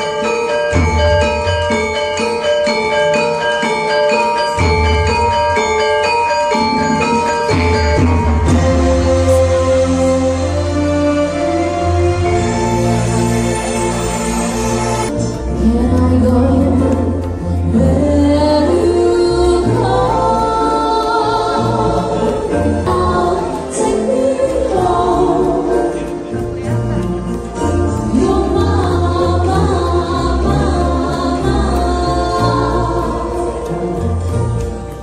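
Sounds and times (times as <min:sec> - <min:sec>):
person singing: 0:15.2 - 0:34.5.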